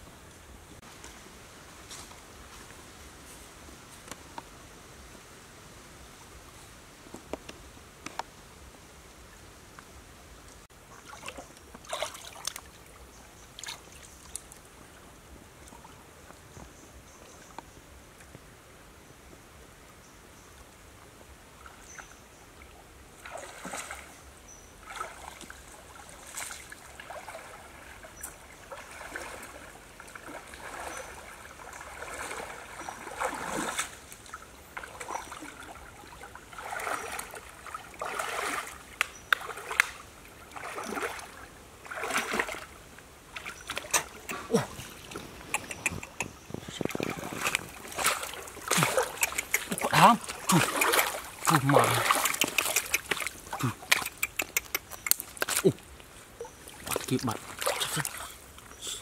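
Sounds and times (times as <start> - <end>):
shallow stream trickling: 0.0 - 59.0
footsteps wading and splashing: 11.0 - 12.8, 13.5 - 14.6, 23.2 - 24.1, 24.8 - 58.7.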